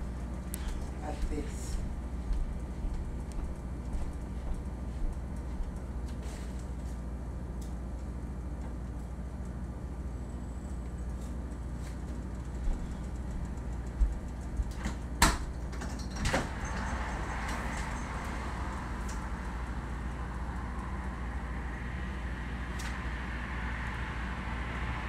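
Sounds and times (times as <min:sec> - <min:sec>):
steady low hum: 0:00.0 - 0:25.0.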